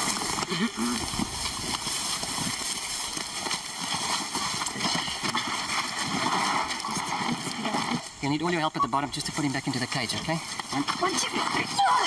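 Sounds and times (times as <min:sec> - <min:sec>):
footsteps in dry grass: 0:00.0 - 0:12.0
tarp rustling: 0:00.0 - 0:12.0.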